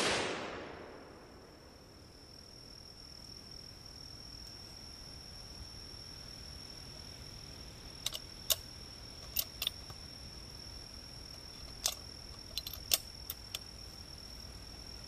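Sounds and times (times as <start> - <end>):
rifle mechanical clicks: 8.0 - 8.6, 11.6 - 13.7.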